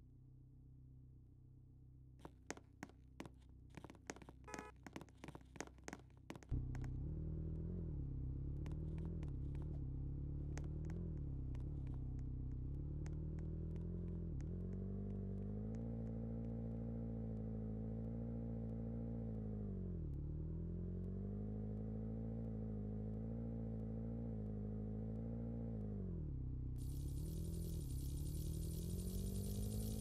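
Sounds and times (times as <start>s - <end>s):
motor humming: 26.8s - 30.0s.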